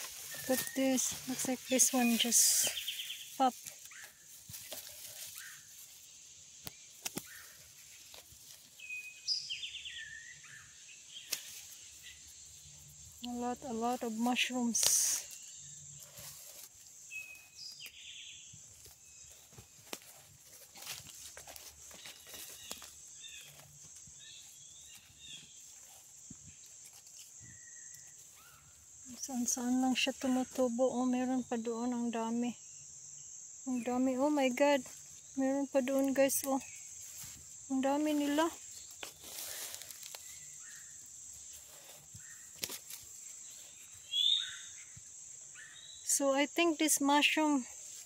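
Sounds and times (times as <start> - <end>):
bird chirping: 0.0 - 4.2, 8.7 - 13.2, 43.2 - 46.1
footsteps rustling through leaves: 0.0 - 6.3, 7.2 - 9.3, 13.3 - 17.9, 18.5 - 30.6, 36.0 - 44.7
high insect drone: 0.0 - 48.0.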